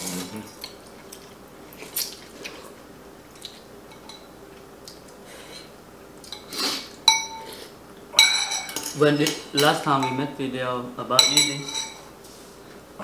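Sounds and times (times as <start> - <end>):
spoon clinking against bowl: 7.1 - 7.5, 8.2 - 10.4, 11.2 - 12.1.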